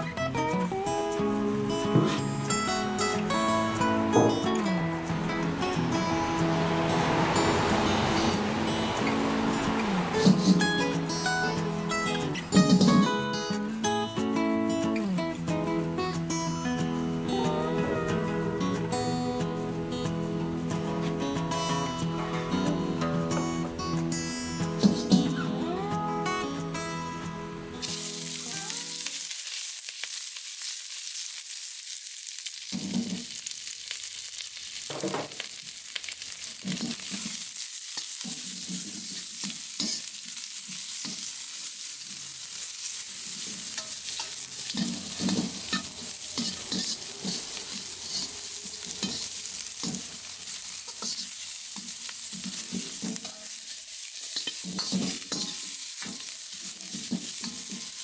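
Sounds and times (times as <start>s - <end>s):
vegetables sizzling in a wok: 0.0s - 58.0s
metal ladle scraping a pan: 42.6s - 53.5s.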